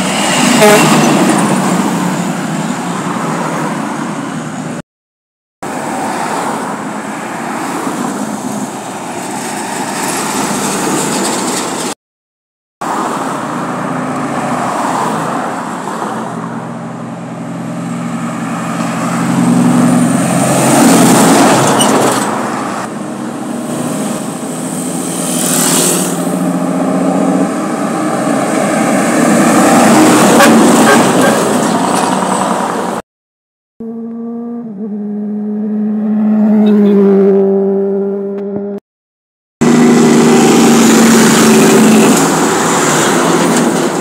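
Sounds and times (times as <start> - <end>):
heavy trucks passing: 0.0 - 4.8, 5.6 - 12.0, 12.8 - 33.0, 39.6 - 44.0
road traffic: 0.0 - 4.8, 5.6 - 12.0, 12.8 - 33.1, 33.8 - 38.8, 39.6 - 44.0.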